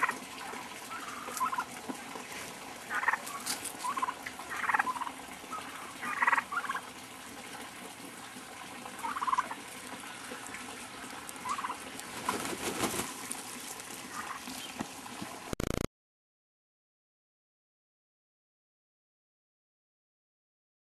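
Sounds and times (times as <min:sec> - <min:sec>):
turkeys gobbling: 0:00.0 - 0:13.4, 0:14.0 - 0:14.8.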